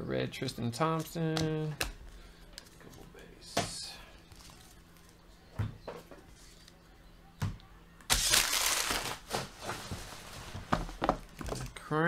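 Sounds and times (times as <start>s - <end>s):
foil wrappers crinkling: 8.1s - 10.3s.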